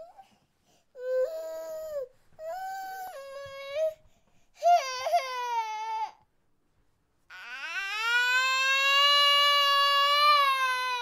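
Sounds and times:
infant crying: 4.6 - 6.2, 7.3 - 11.0.

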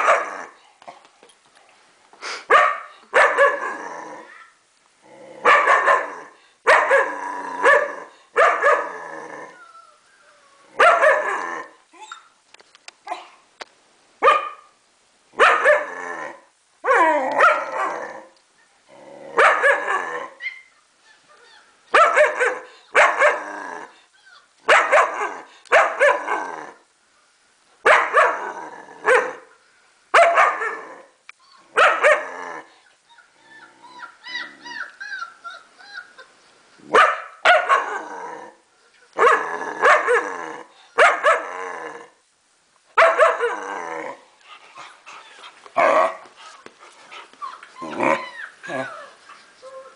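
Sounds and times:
dog barking: 0.0 - 0.3, 2.5 - 3.6, 5.5 - 6.1, 6.7 - 8.8, 10.8 - 11.3, 14.2 - 14.7, 15.4 - 15.9, 19.4 - 19.9, 21.9 - 23.4, 24.7 - 26.2, 27.9 - 28.4, 29.1 - 29.4, 30.2 - 30.8, 31.8 - 32.3, 36.9 - 38.0, 39.2 - 40.2, 41.0 - 41.4, 43.0 - 43.5
dog whimpering: 33.1 - 36.3, 47.4 - 49.9.

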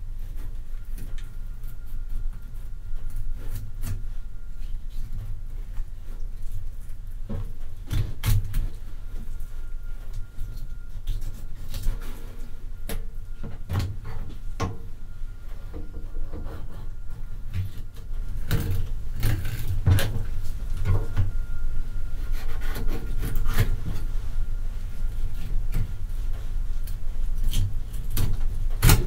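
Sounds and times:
knife scraping fish bones: 22.3 - 24.1.

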